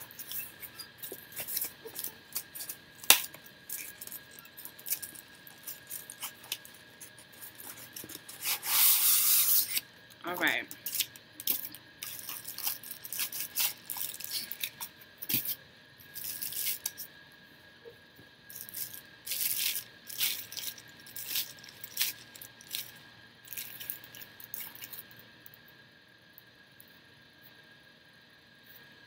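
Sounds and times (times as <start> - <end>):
plastic bag crinkling: 0.0 - 9.8, 10.8 - 17.0, 18.5 - 25.1.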